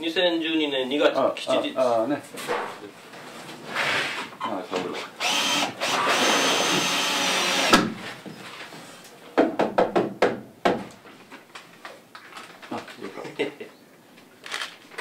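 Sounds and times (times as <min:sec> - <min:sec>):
cordless drill driving screw: 0:05.2 - 0:07.8
sharp wooden knocks: 0:09.4 - 0:10.9.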